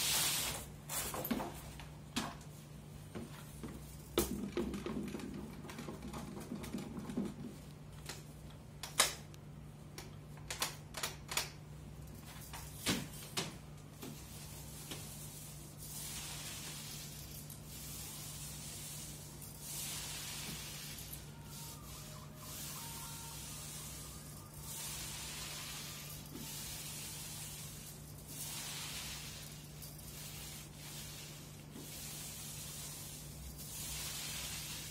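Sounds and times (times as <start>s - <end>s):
paint roller swishing on wall: 0.0s - 8.2s, 12.2s - 34.9s
paint roller rustling: 0.0s - 8.3s, 12.1s - 34.9s.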